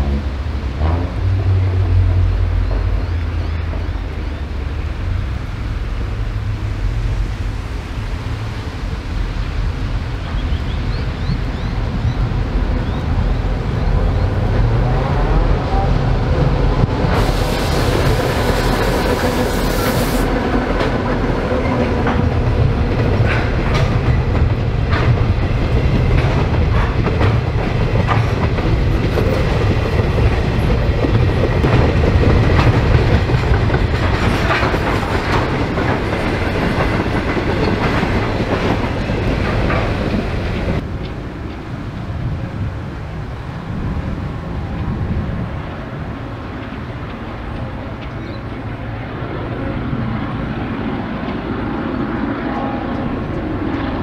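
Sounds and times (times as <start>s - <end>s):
freight train rumbling past: 0.0s - 54.0s
wheels clicking over rail joints: 20.6s - 42.4s.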